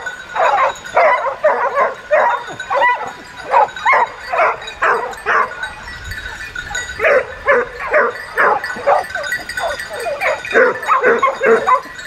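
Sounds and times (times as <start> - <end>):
dog barking: 0.0 - 5.7, 6.8 - 12.0.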